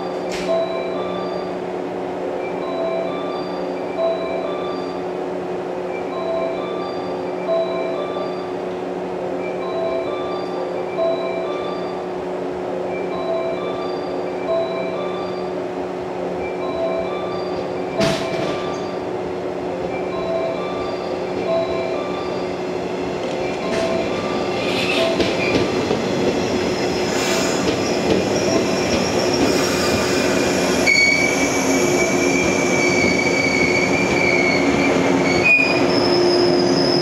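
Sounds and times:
electric train rumbling past: 0.0s - 37.0s
train wheels squealing: 3.1s - 5.1s, 11.5s - 12.1s, 13.6s - 14.3s, 17.1s - 19.1s, 22.0s - 37.0s.

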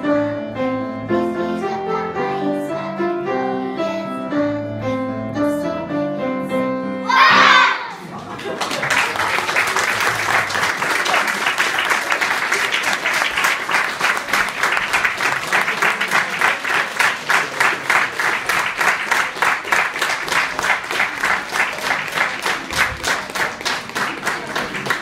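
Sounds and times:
small audience applauding: 8.0s - 25.0s
close hand claps: 8.2s - 25.0s.

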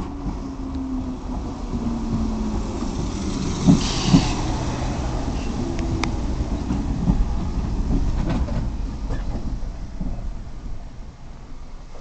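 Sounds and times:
electric train rumbling: 0.0s - 12.0s
train wheels clacking: 3.3s - 10.2s.

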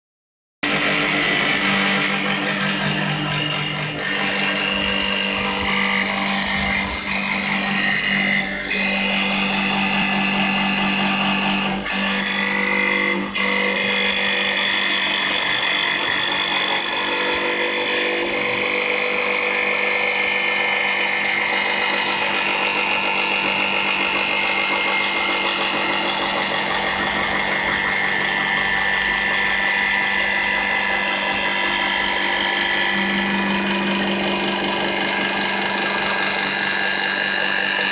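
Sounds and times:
wood lathe spindle running: 0.6s - 37.9s
low hum: 0.7s - 11.8s.

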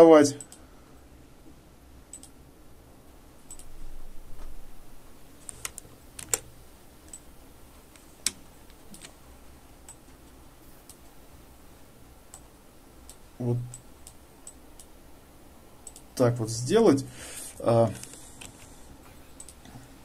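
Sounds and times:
computer mouse clicks: 0.4s - 0.6s, 2.1s - 2.4s, 3.5s - 3.7s, 5.4s - 6.5s, 8.0s - 9.2s, 15.8s - 16.1s, 19.4s - 19.7s.

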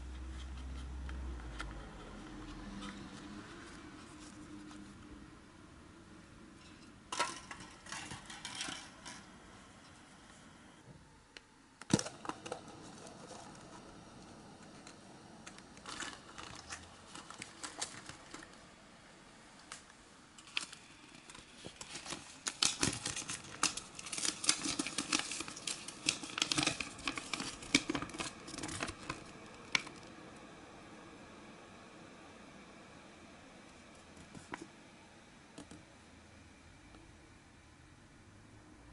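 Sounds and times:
wrapper and paper crinkling: 15.8s - 18.6s, 20.4s - 30.1s.

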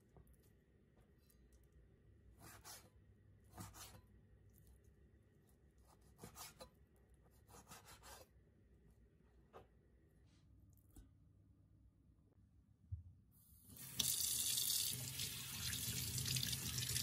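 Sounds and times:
knife slicing on cutting board: 2.4s - 2.9s, 3.5s - 4.0s, 5.9s - 6.7s, 7.4s - 8.3s.

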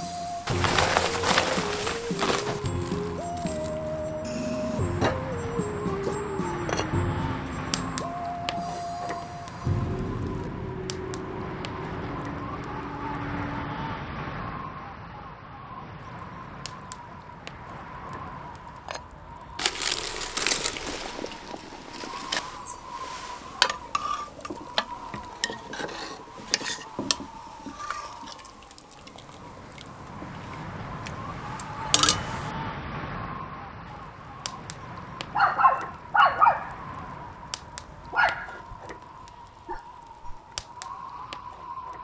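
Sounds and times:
ceramic bowls clinking: 4.9s - 8.2s, 21.0s - 29.9s, 31.9s - 32.5s.

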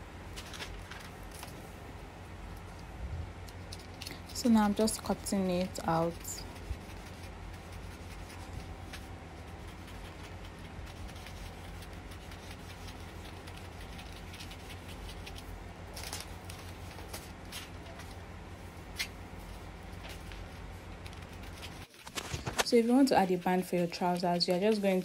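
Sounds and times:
steady low hum: 0.0s - 25.0s
paper rustling: 0.3s - 1.7s, 2.5s - 18.2s, 18.9s - 25.0s
paper crinkling: 0.3s - 1.8s, 2.5s - 18.3s, 18.9s - 25.0s.

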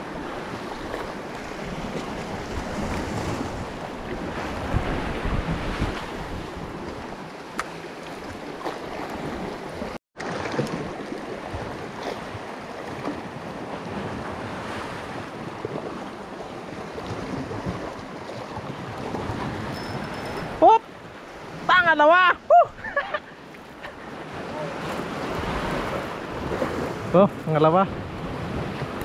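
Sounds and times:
sea waves on rocky shore: 0.0s - 29.0s
wind buffeting microphone: 1.6s - 7.2s.

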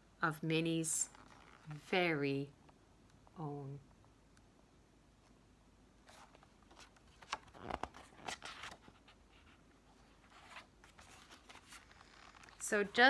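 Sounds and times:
paper pages rustling: 1.1s - 1.8s, 6.0s - 13.0s.

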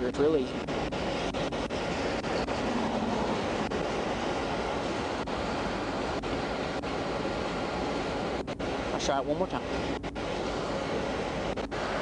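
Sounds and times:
wind: 0.0s - 12.0s
highway traffic: 2.2s - 6.1s.

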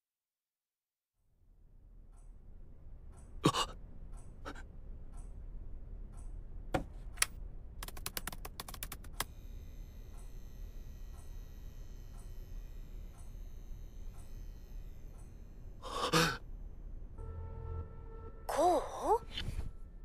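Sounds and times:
low room hum: 1.4s - 20.0s
keyboard typing: 7.2s - 9.3s.

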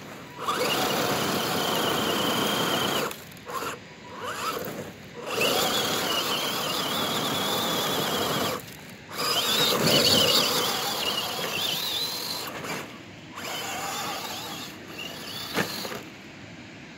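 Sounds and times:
toy car electric motor whining: 0.1s - 16.1s.

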